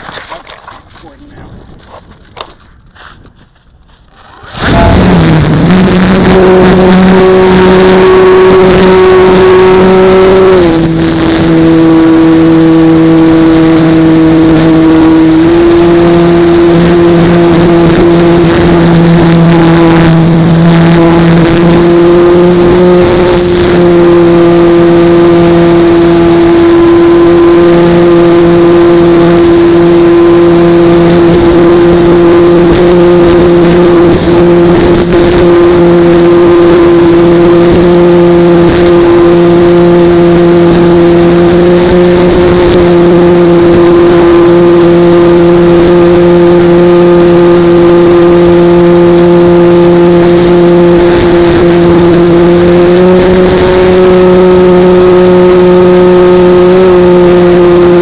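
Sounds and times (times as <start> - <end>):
wind rushing over microphone: 0.8 - 3.5, 4.4 - 12.9
model airplane motor drone: 2.4 - 58.0.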